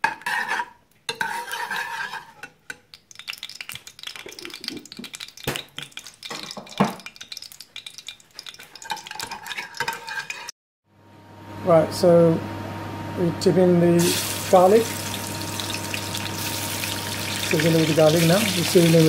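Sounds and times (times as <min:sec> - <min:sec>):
metal spoon scraping a pan: 0:00.0 - 0:05.2, 0:05.8 - 0:10.5
ghee sizzling: 0:00.0 - 0:10.5, 0:14.0 - 0:19.0.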